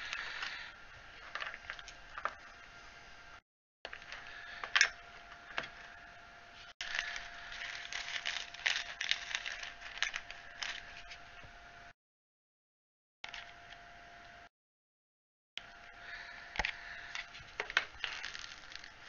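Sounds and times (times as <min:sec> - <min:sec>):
faint steady whine: 0:00.0 - 0:12.0, 0:15.6 - 0:19.0
small objects set on plastic mat: 0:06.8 - 0:11.2, 0:17.1 - 0:19.0.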